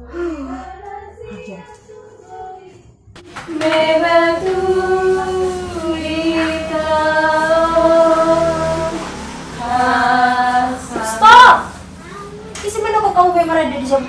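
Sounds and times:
person singing slow melody: 0:00.0 - 0:01.6.

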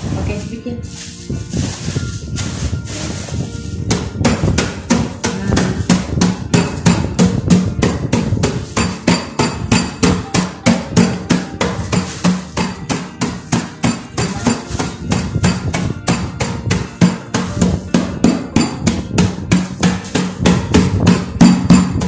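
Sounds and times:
bag pounded on wooden table: 0:01.6 - 0:22.0.

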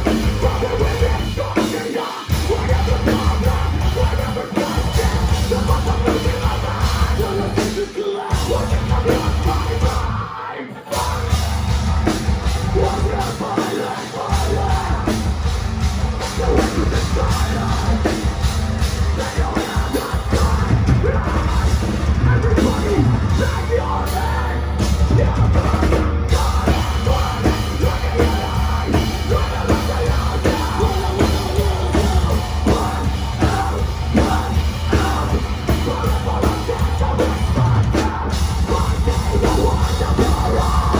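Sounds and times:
bass guitar: 0:00.0 - 0:10.3, 0:10.9 - 0:40.9
distorted electric guitars: 0:00.0 - 0:40.9
pounding drum kit: 0:00.0 - 0:40.9
screamed vocals: 0:00.7 - 0:11.5.

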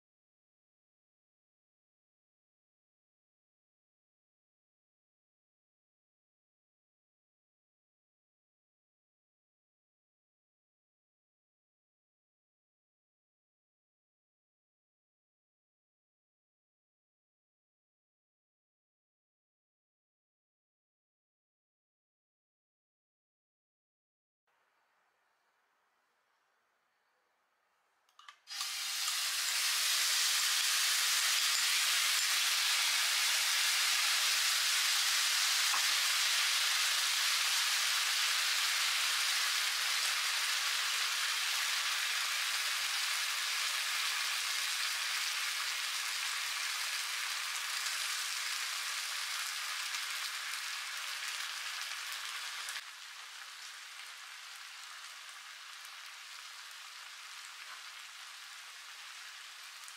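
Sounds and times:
sauce sizzling in a frying pan: 0:28.5 - 0:59.9.

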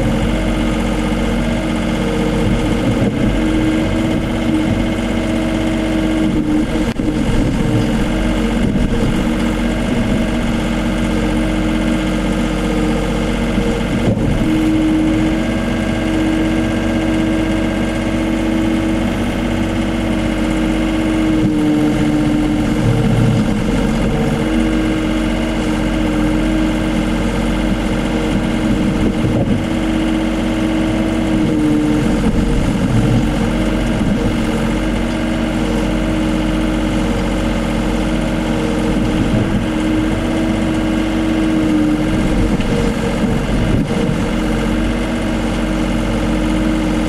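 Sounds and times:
excavator bucket digging soil: 0:00.0 - 0:47.0
excavator diesel engine running: 0:00.0 - 0:47.0.

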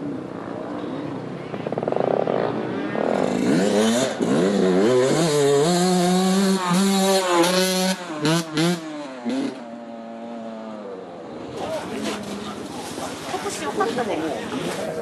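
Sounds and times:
dirt bike engine revving: 0:01.7 - 0:13.4.

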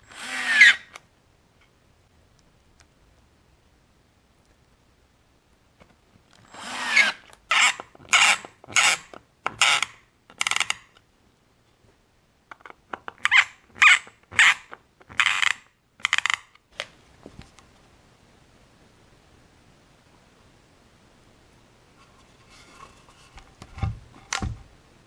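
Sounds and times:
screwdriver rasping: 0:00.1 - 0:01.0, 0:06.4 - 0:10.9, 0:12.9 - 0:16.4.

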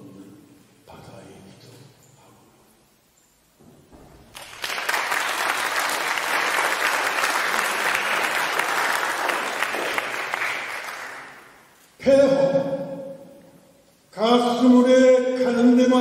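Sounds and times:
audience applauding: 0:04.3 - 0:11.6.

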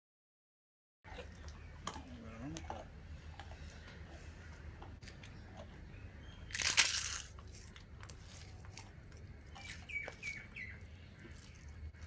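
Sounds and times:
crackly crunch of pappadam: 0:06.4 - 0:10.6.

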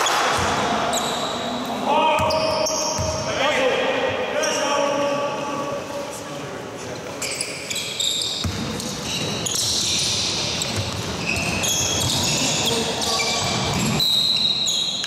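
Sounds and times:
players' voices: 0:00.0 - 0:07.4
sneaker squeaks on wooden floor: 0:00.9 - 0:01.4, 0:02.2 - 0:03.3, 0:07.1 - 0:15.0
basketball bouncing: 0:02.2 - 0:03.2, 0:08.4 - 0:09.0, 0:10.6 - 0:12.4.

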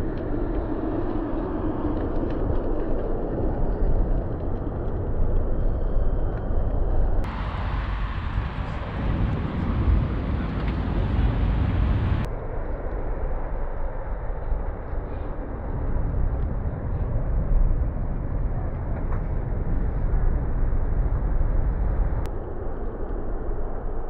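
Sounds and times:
cars driving past: 0:07.3 - 0:12.3.

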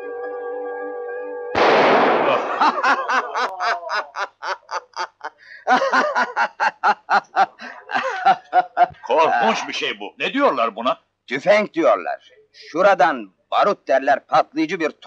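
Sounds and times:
held music chord: 0:00.0 - 0:01.7
loud musket gunshot: 0:01.6 - 0:02.6
men laughing: 0:02.2 - 0:09.9.

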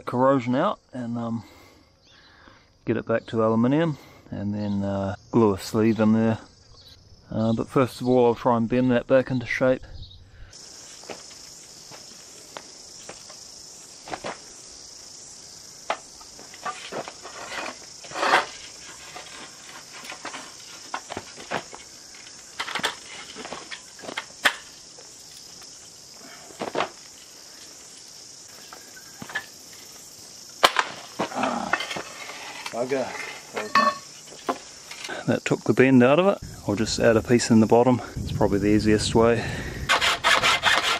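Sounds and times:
high-pitched insect buzz: 0:10.0 - 0:35.2.

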